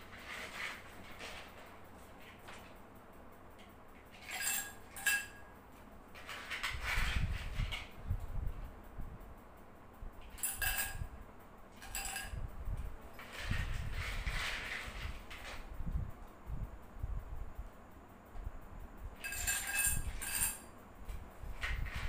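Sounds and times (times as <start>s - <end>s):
ice clinking against glass: 4.3s - 5.4s, 10.4s - 11.0s, 11.8s - 12.4s, 19.2s - 20.6s.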